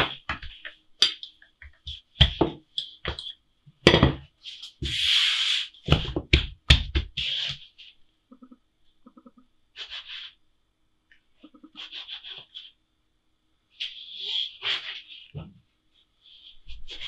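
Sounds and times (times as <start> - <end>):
dough scraping on counter: 7.0 - 7.8.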